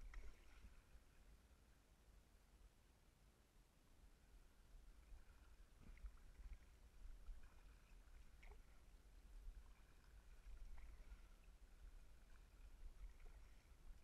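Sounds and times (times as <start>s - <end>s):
muffled kayak paddling rumble: 0.0s - 1.7s, 4.0s - 14.0s.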